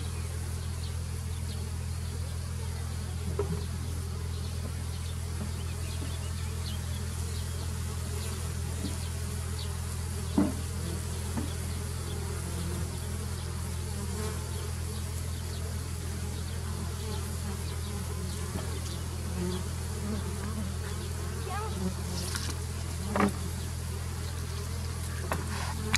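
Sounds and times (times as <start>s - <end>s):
bee swarm humming: 0.0s - 25.9s.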